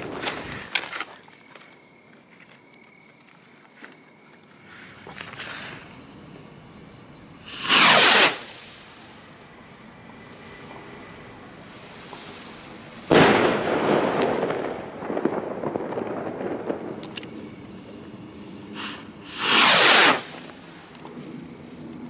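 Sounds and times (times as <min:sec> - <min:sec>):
firework crackling: 0:00.0 - 0:00.9, 0:04.6 - 0:22.0
firework rocket whoosh: 0:04.9 - 0:09.4, 0:10.2 - 0:22.0
firework burst: 0:05.5 - 0:09.4, 0:10.2 - 0:21.4.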